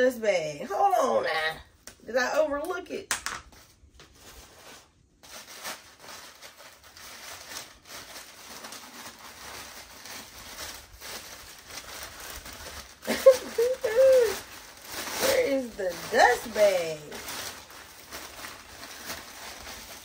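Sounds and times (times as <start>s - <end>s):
packing paper rustling: 3.5s - 20.0s.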